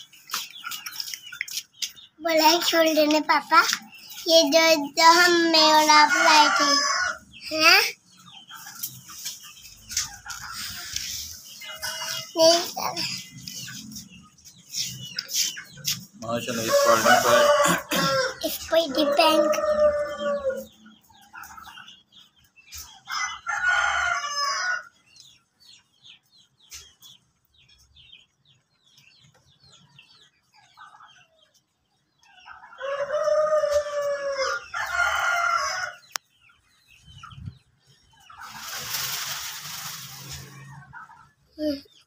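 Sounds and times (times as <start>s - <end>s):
faint clicks and chirps: 0.0s - 2.2s, 36.1s - 36.3s
fowl crowing: 16.6s - 18.4s.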